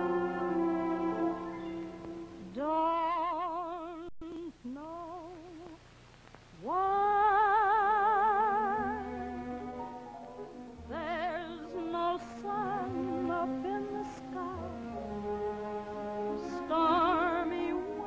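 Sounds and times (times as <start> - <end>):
orchestra chord: 0.0 - 2.5
woman singing operatically: 2.4 - 5.8, 6.6 - 9.8, 10.8 - 15.0, 16.2 - 18.0.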